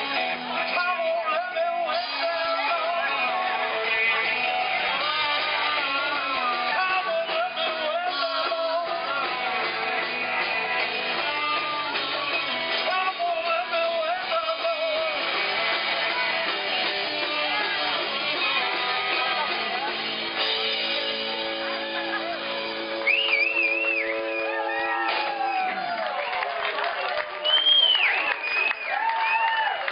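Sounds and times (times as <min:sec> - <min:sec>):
person singing: 0:00.0 - 0:22.6
live rock band playing: 0:00.0 - 0:28.6.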